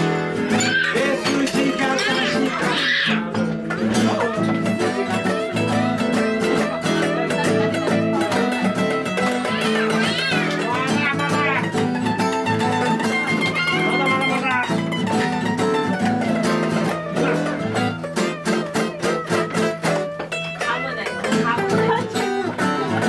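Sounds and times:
live guitar band music: 0.0s - 23.0s.

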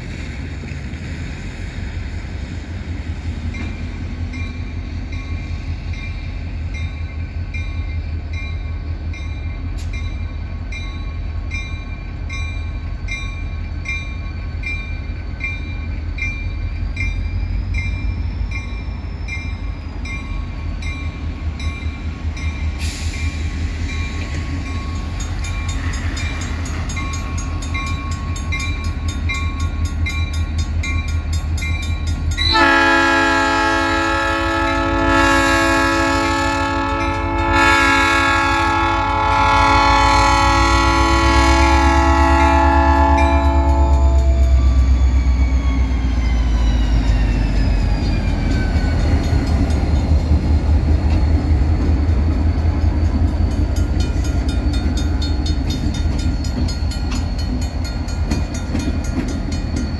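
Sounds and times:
locomotive air horn blast: 32.5s - 44.5s.

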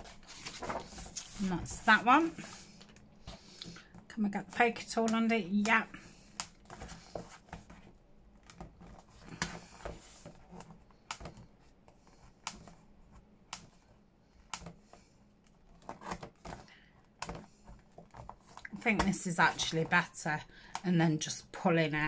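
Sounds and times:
paper rustling: 0.0s - 3.6s.

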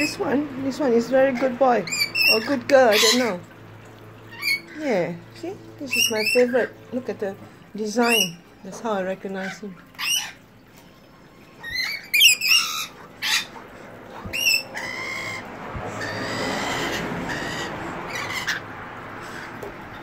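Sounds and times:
lorikeets screeching: 1.2s - 3.5s, 4.2s - 4.8s, 5.8s - 6.8s, 7.9s - 8.5s, 9.3s - 10.5s, 11.6s - 20.0s.

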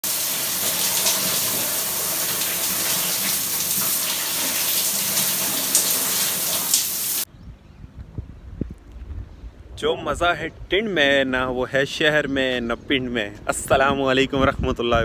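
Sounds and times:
shower water spraying on tiles: 0.0s - 7.3s.

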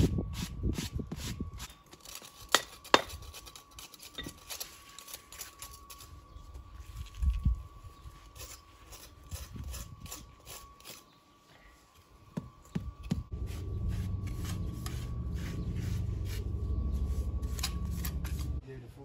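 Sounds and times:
hand tool scraping stone: 0.8s - 6.5s, 8.2s - 11.2s
low machine rumble: 13.2s - 18.6s.

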